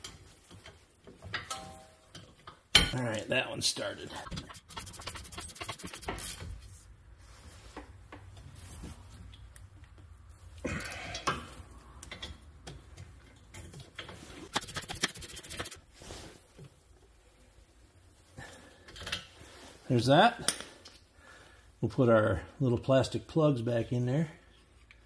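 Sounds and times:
ratchet clicking: 4.3 - 6.4, 14.5 - 15.8.

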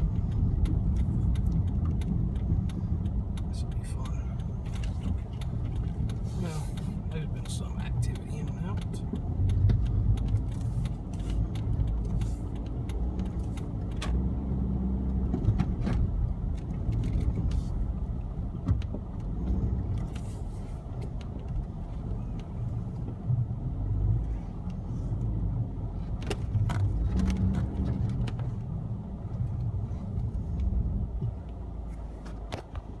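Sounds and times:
car engine and tyres rumbling: 0.0 - 33.0.

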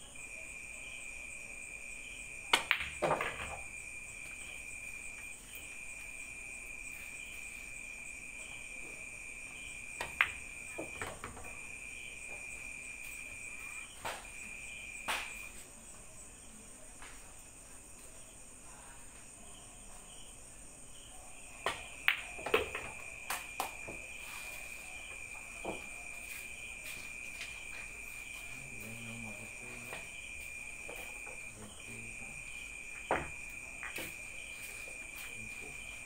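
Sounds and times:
crickets chirring: 0.0 - 36.0
pool balls clacking: 2.5 - 3.7, 10.0 - 11.6, 21.6 - 24.0, 33.0 - 34.2.

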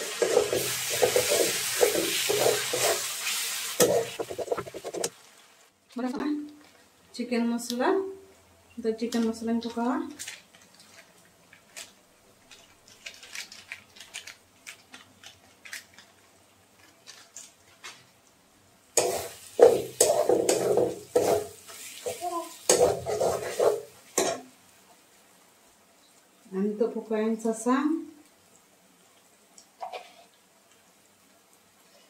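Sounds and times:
steel spatula scraping a wok: 0.0 - 5.0, 19.0 - 24.4.

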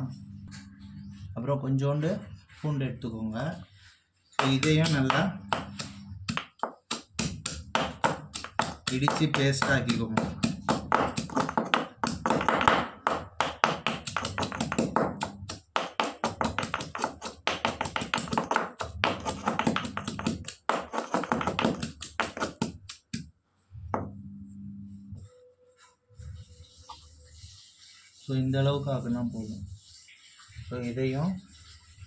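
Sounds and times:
stone pestle pounding in mortar: 4.4 - 23.3.

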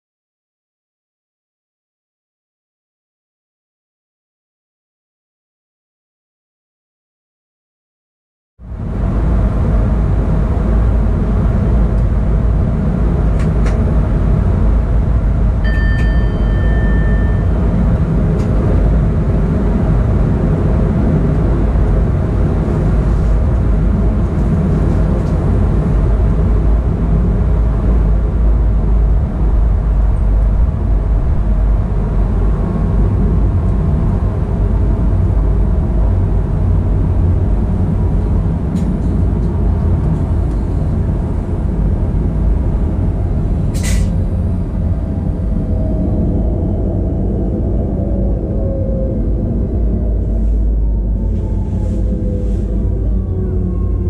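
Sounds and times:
train wheels rumbling on rails: 8.7 - 54.0
high beep: 15.6 - 17.7.

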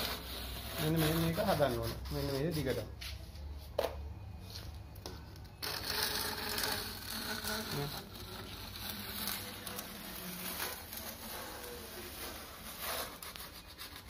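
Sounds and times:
steel blade scraping plaster: 5.6 - 14.0.

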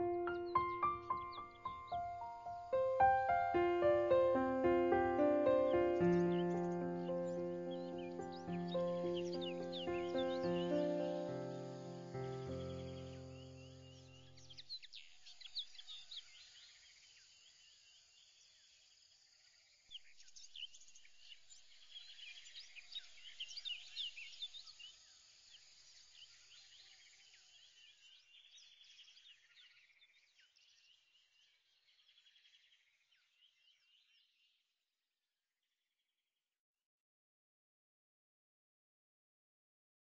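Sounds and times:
small birds chirping: 0.0 - 18.7, 19.9 - 34.6
high insect-like hiss: 1.9 - 14.1.

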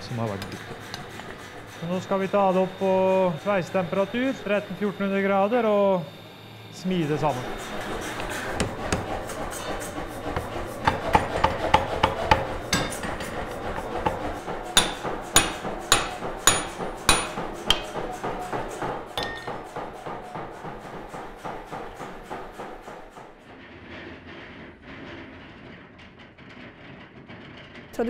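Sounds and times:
power hammer striking iron: 0.0 - 5.6, 7.0 - 23.4
hand hammer ringing on anvil: 14.8 - 17.8, 19.2 - 19.6.

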